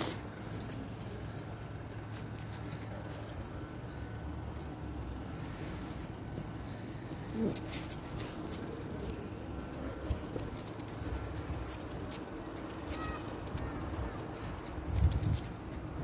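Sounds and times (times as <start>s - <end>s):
puppy paws tapping on pavement: 7.2s - 16.0s
footsteps on pavement: 7.4s - 16.0s.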